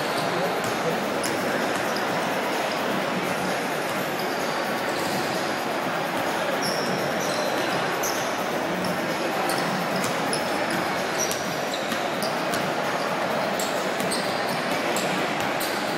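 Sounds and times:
crowd chatter in a large hall: 0.0 - 15.9
sneaker squeaks: 3.9 - 5.4, 6.6 - 15.9.

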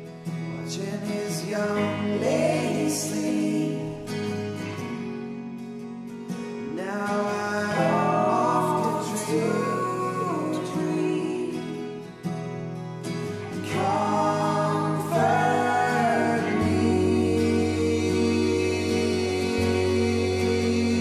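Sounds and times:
person singing long held notes: 7.7 - 11.8, 13.6 - 21.0
sustained chords: 13.2 - 21.0.

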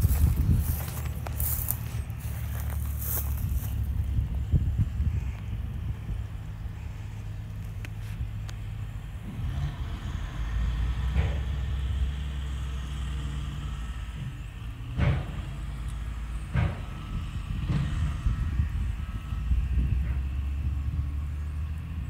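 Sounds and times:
low motor hum: 0.0 - 22.0.

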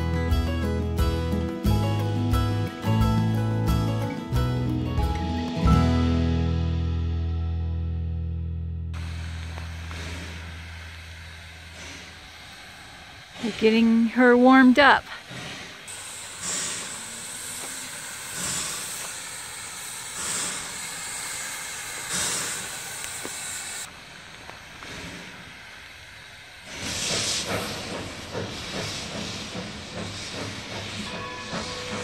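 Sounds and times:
steam blowing from cylinder cocks: 9.0 - 32.0
steam locomotive venting steam: 9.0 - 32.0.

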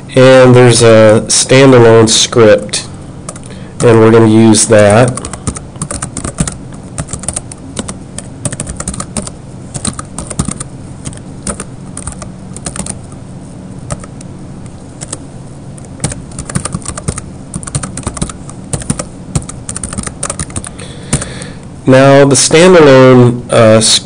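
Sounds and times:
low steady hum: 0.0 - 24.0
typing on computer keyboard: 5.0 - 13.0, 13.9 - 14.1, 15.0 - 15.2, 16.0 - 21.3.

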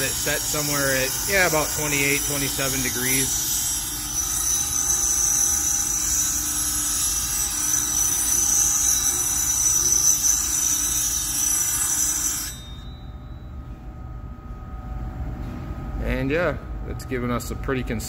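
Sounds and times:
grinder high-pitched grinding hiss: 0.0 - 12.6.

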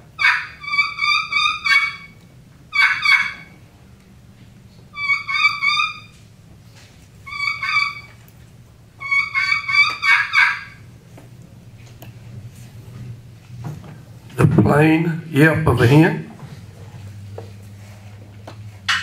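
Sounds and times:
turkey call whistling: 0.1 - 3.6, 4.9 - 6.2, 7.2 - 8.2, 9.0 - 10.9.

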